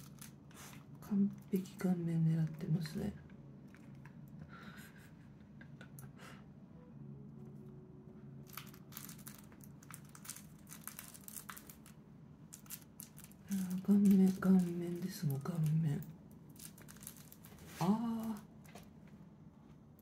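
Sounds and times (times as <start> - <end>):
dog teeth crackling on yarn: 8.5 - 18.8.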